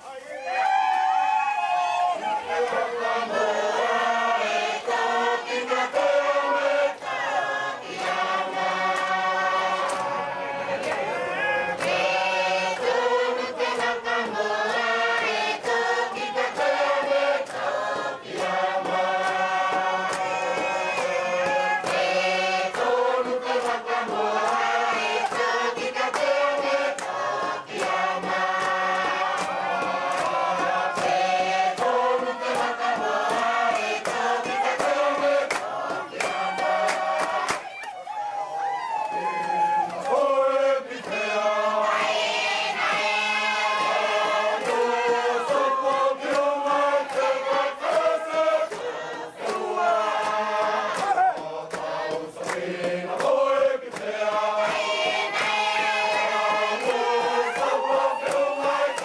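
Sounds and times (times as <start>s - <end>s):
group singing together: 1.8s - 59.0s
sharp percussive beats: 26.9s - 37.7s.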